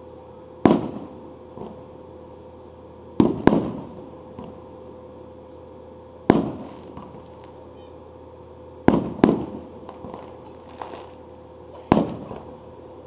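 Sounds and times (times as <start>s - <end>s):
firework booms with echo: 0.6s - 1.8s, 3.2s - 4.5s, 6.2s - 7.2s, 8.8s - 10.3s, 11.9s - 12.5s.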